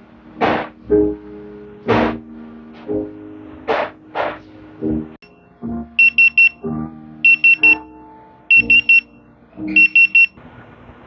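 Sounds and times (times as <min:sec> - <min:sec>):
soft background music: 0:00.0 - 0:10.4
pager high beeps: 0:06.0 - 0:06.6, 0:07.2 - 0:07.8, 0:08.5 - 0:09.1, 0:09.7 - 0:10.4.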